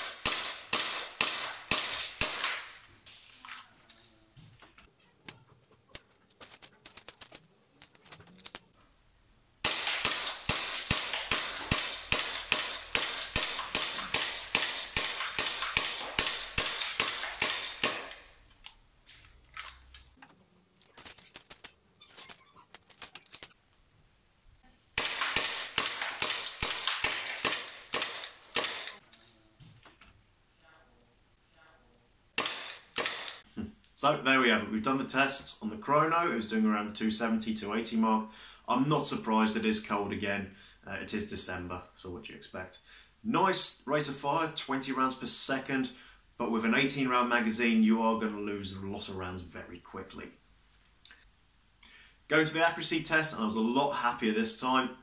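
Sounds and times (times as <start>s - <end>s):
airsoft pistol shots: 0.0s - 2.8s, 9.6s - 18.3s, 25.0s - 29.0s, 32.4s - 33.4s
pistol clicks: 25.0s - 29.0s, 32.4s - 33.4s.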